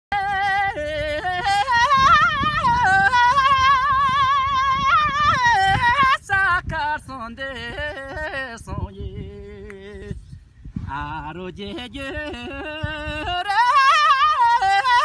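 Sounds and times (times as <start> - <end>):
man singing unaccompanied: 0.1 - 15.0.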